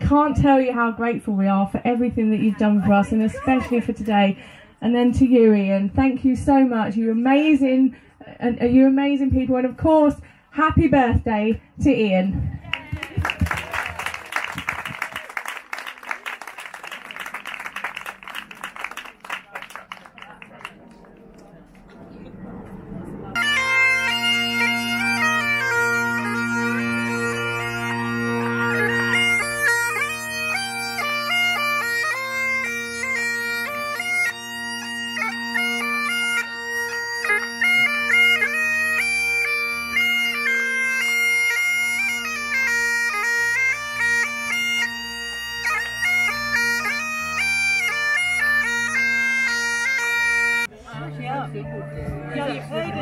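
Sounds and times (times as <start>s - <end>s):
bagpipe drones: 21.7s - 53.0s
bagpipe melody: 23.3s - 53.0s.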